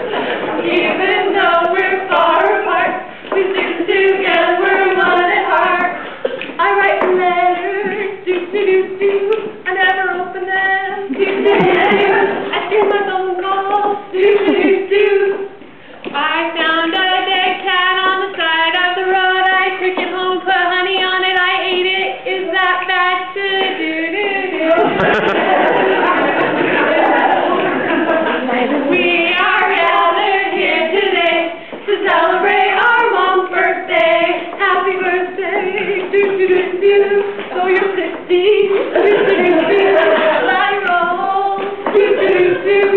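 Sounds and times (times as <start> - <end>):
women singing a cappella: 0.0 - 42.9
singers breathing: 31.5 - 31.9.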